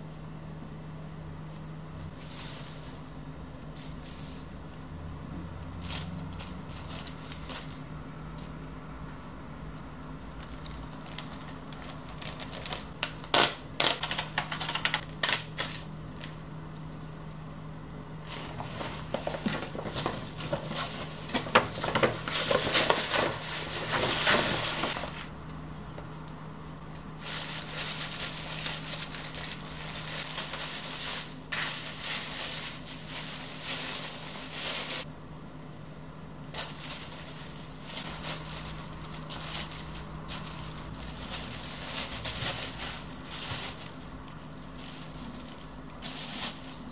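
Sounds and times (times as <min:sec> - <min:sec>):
steady low hum: 0:00.0 - 0:46.9
paper rustling and crinkling: 0:05.8 - 0:07.8, 0:10.4 - 0:16.4, 0:18.2 - 0:25.3, 0:27.2 - 0:35.1, 0:36.5 - 0:46.9.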